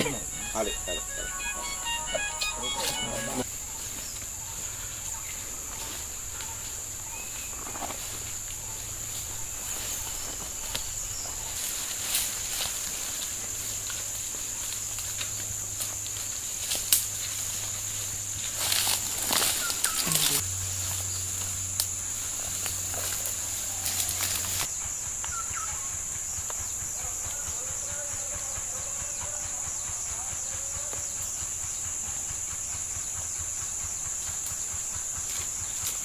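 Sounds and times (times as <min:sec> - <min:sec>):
high-pitched insect drone: 0:00.0 - 0:36.0
rustling of brush and leaves: 0:02.7 - 0:24.8
faint bird chirps: 0:19.4 - 0:20.4, 0:25.2 - 0:25.9.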